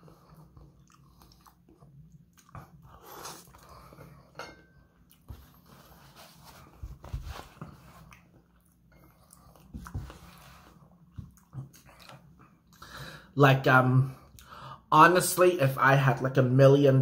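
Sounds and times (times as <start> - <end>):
chewing and mouth sounds: 0.0 - 4.3, 7.6 - 12.9.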